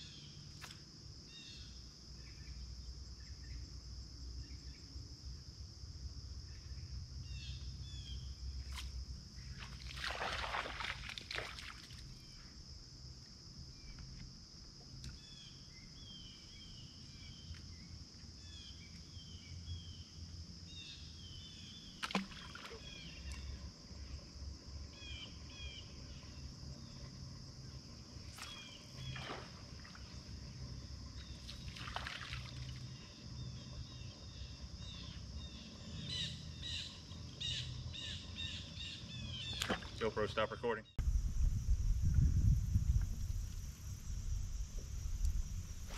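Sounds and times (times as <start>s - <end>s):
crickets and insects droning: 0.0s - 45.9s
bird chirps: 34.8s - 41.0s.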